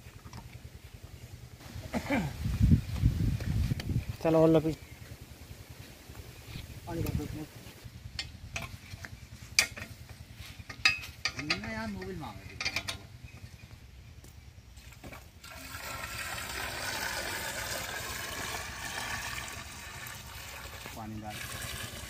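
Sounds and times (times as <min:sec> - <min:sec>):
spanner clinking on metal fitting: 0:10.7 - 0:13.1
water pouring from a bucket: 0:15.4 - 0:22.0.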